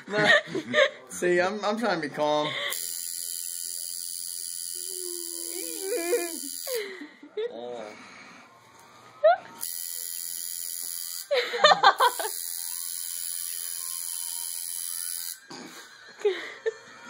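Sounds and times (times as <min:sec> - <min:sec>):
tattoo machine buzzing: 0:02.7 - 0:06.9, 0:09.6 - 0:11.3, 0:11.9 - 0:15.5.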